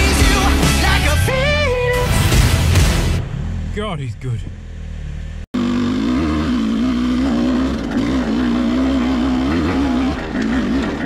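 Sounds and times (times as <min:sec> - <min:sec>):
dirt bike engine revving: 0:04.5 - 0:11.0.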